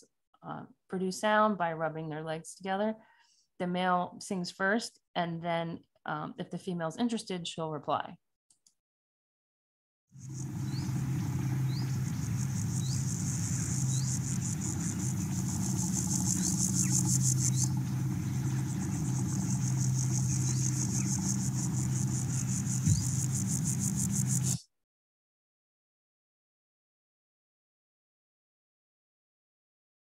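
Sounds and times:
grasshopper stridulating: 10.2 - 24.6
steady low hum: 10.2 - 24.6.

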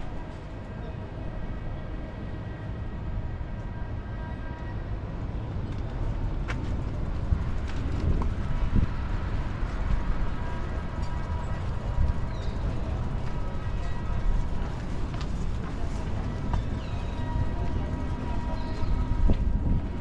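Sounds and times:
distant road traffic rumble: 5.4 - 20.0.

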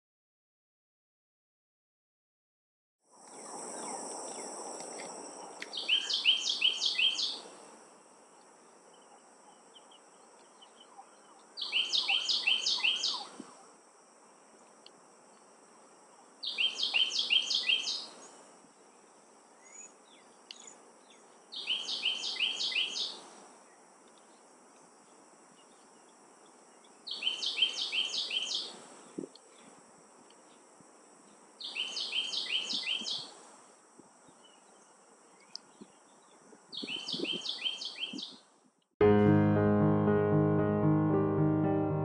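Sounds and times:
wren singing: 5.6 - 7.4, 9.0 - 13.3, 16.4 - 18.2, 19.6 - 23.2, 27.1 - 28.7, 31.6 - 33.2, 36.8 - 38.4.

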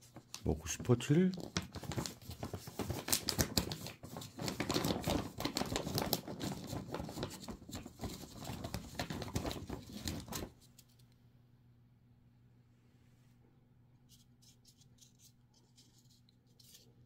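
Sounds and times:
plastic bag crinkling: 1.2 - 10.5.

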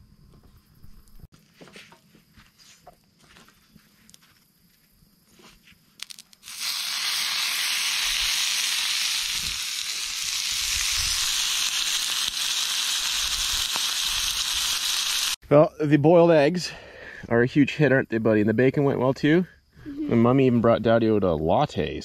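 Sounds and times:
bacon sizzling in a skillet: 6.4 - 15.4.

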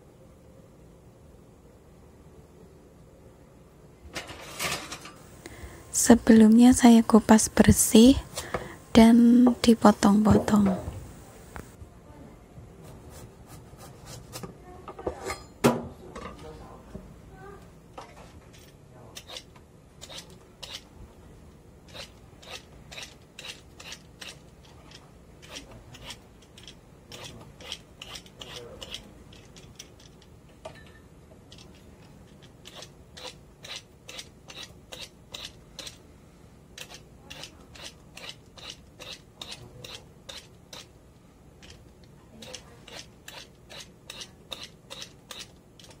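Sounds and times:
peeler scraping gourd skin: 19.2 - 20.9, 21.8 - 30.2, 31.5 - 36.0, 36.8 - 40.9, 41.6 - 46.0.

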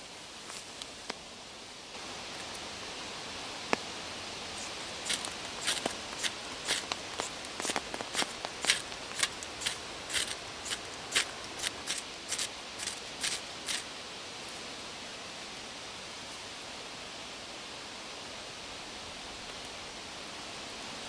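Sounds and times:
knife scraping wood: 4.6 - 13.9.

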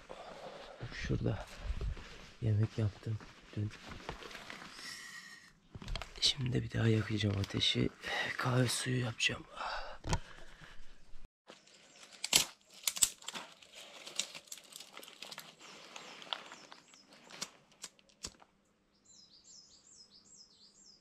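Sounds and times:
paper crinkling and rustling: 1.5 - 5.0, 5.7 - 7.8, 11.5 - 18.4
bird chirping: 18.8 - 21.0.

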